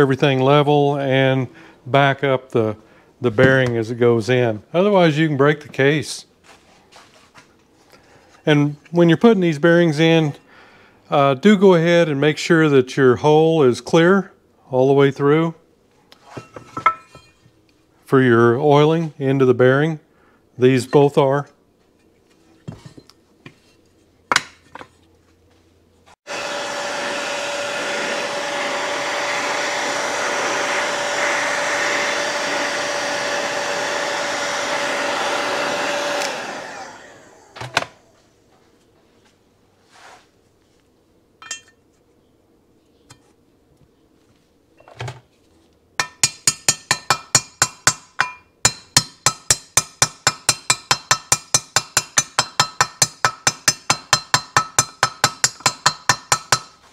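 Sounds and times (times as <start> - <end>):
heat gun running: 26.2 - 38.1
mallet tapping a bearing: 46.0 - 56.8.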